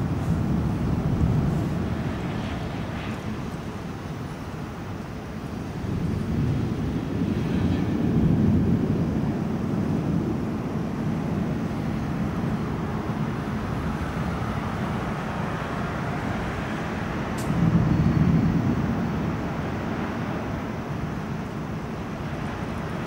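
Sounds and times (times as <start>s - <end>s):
distant thunder rumbling: 5.8s - 23.0s.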